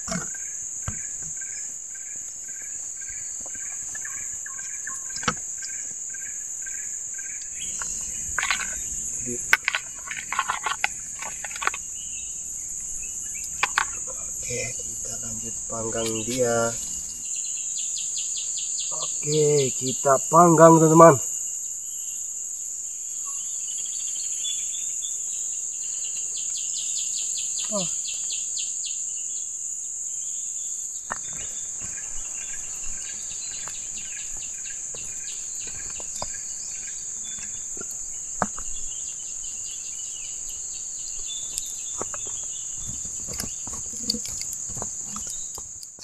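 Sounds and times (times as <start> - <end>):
insects droning: 0.0 - 46.0
campfire crackling and popping: 41.5 - 46.0.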